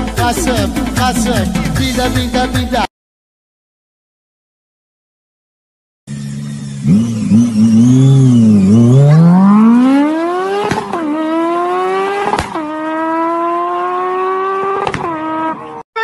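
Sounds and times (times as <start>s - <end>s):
car engine revving and accelerating: 6.1s - 15.8s.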